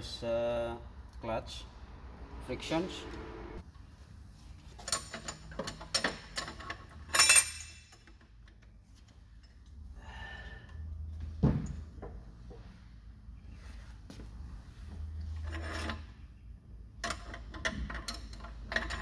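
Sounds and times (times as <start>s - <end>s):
metal clutch plates clinking: 4.7s - 9.8s, 17.0s - 19.0s.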